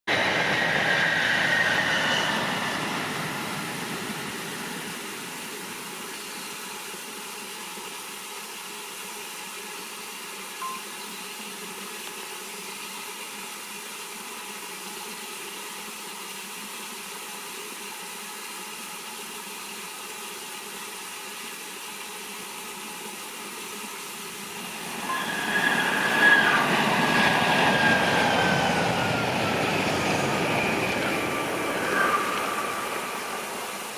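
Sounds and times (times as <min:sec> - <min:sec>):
high-speed train passing: 0:00.1 - 0:06.4, 0:24.4 - 0:33.9
train approaching: 0:00.1 - 0:06.4, 0:24.4 - 0:33.9
high tone gliding down: 0:24.6 - 0:33.9.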